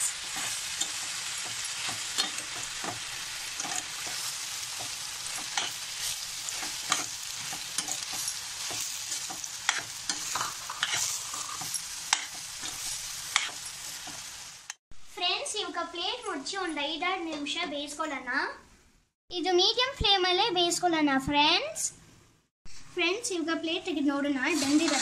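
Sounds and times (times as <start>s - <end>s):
metal spoon scraping pan: 0.0s - 14.2s, 24.5s - 25.0s
food sizzling in oil: 0.0s - 14.8s, 24.2s - 25.0s.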